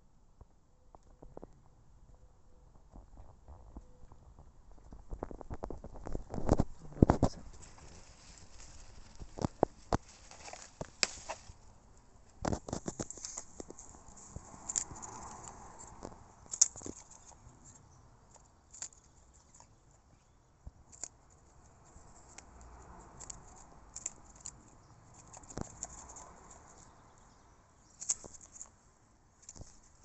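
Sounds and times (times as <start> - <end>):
hens pecking with sharp taps: 2.8 - 27.0
rustling in straw: 6.0 - 16.0.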